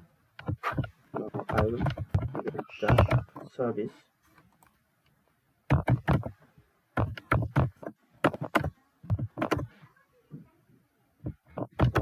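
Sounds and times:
computer keyboard typing: 0:00.4 - 0:03.3, 0:05.7 - 0:06.3, 0:07.0 - 0:09.7, 0:11.6 - 0:12.0.

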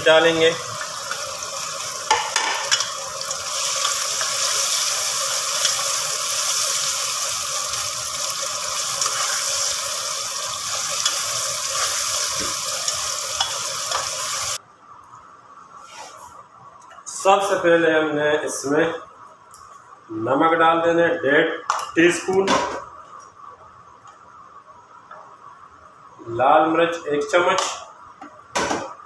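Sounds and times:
vegetables sizzling in hot oil: 0:00.0 - 0:14.6.

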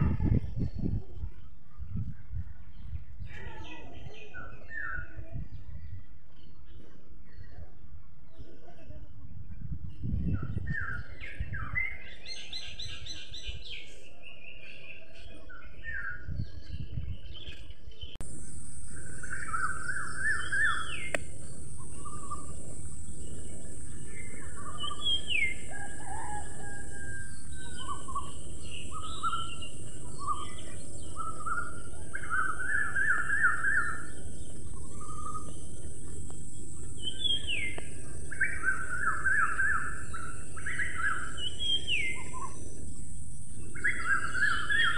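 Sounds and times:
house sparrows chirping: 0:10.3 - 0:44.9
steady high hiss: 0:18.2 - 0:44.9.

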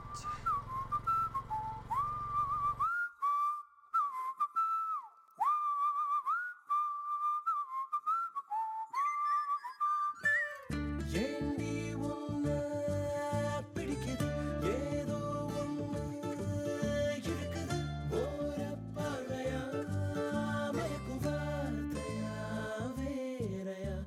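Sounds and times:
low background hum: 0:00.0 - 0:02.9
person whistling a melody: 0:00.1 - 0:11.5, 0:14.2 - 0:22.8
instrumental music: 0:10.0 - 0:23.0.

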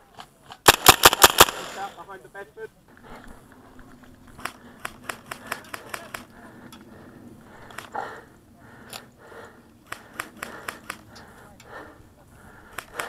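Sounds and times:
airsoft guns firing: 0:00.6 - 0:02.0.

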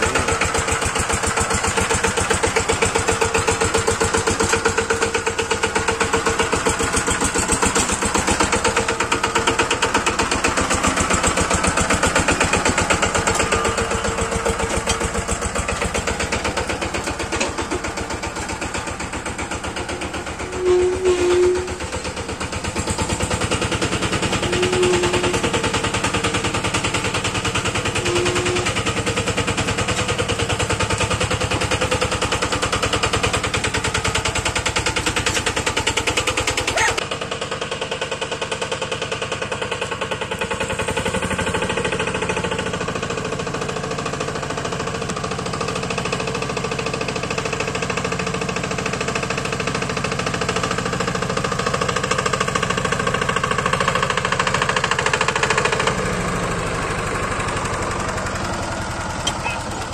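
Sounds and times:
diesel engine chugging: 0:00.0 - 0:59.9.

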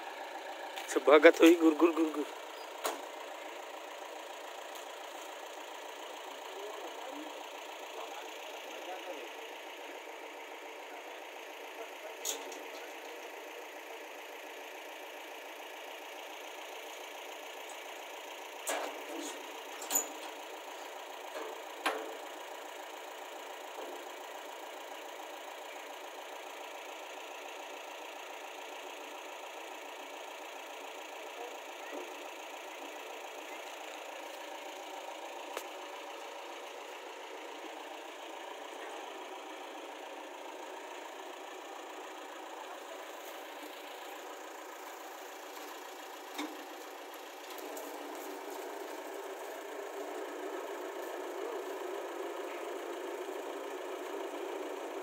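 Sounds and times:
engine idling: 0:00.0 - 0:55.0
sharp clicks and knocks: 0:46.3 - 0:46.6.

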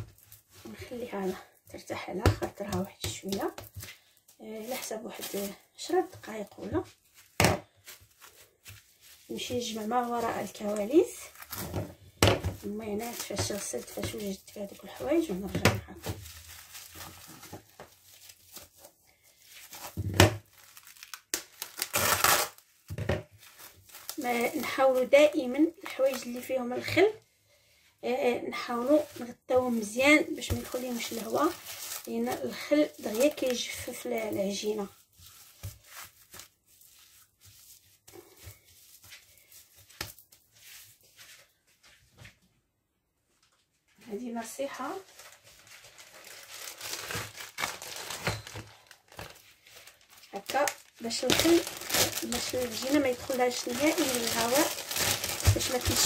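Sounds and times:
cling film crinkling: 0:12.6 - 0:26.5, 0:28.8 - 0:37.3, 0:44.8 - 0:56.0.

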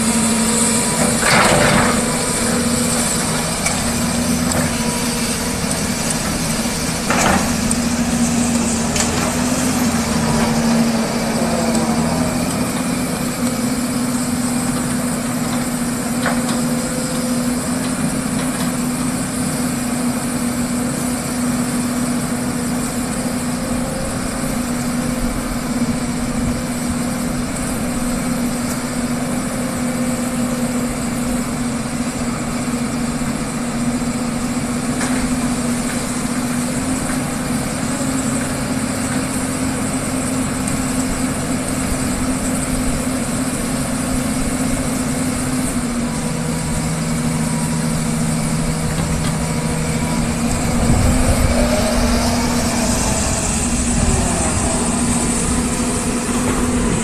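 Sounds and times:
excavator diesel engine running: 0:00.0 - 0:57.0.

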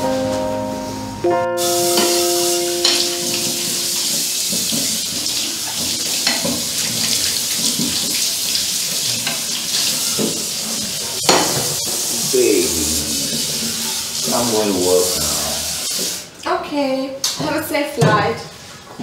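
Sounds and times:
dishes clinking: 0:02.8 - 0:06.8.

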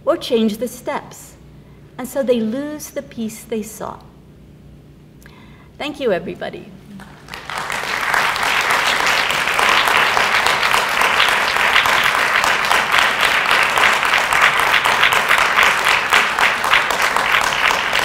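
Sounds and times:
audience applauding: 0:07.0 - 0:18.0.

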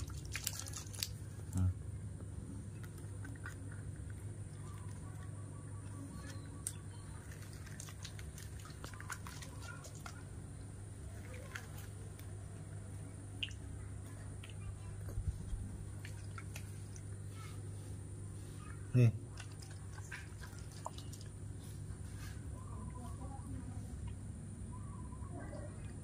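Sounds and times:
wet squishing and smacking: 0:00.0 - 0:17.3, 0:19.2 - 0:22.0
steady low hum: 0:00.0 - 0:26.0.

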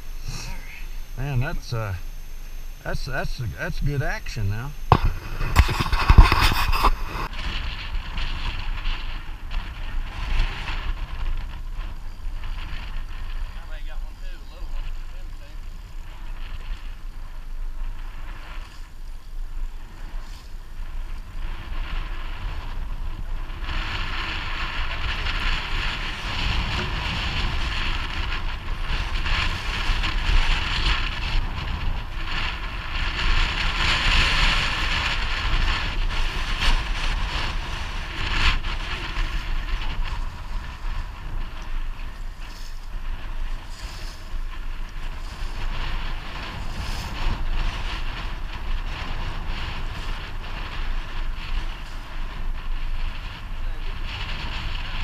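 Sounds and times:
boat motor running: 0:00.0 - 0:07.3
water noise: 0:00.0 - 0:13.5, 0:14.1 - 0:55.0
wind buffeting microphone: 0:00.0 - 0:55.0.

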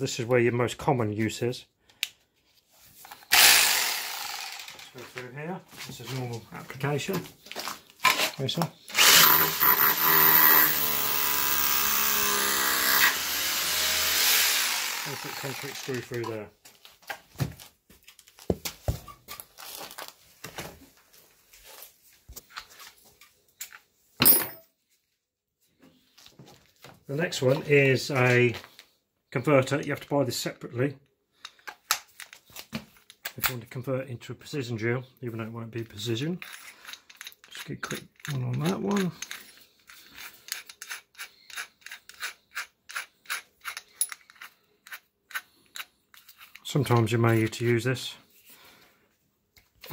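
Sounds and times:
drill chuck ratchet strokes: 0:03.1 - 0:04.8, 0:08.9 - 0:16.2, 0:36.4 - 0:46.7.

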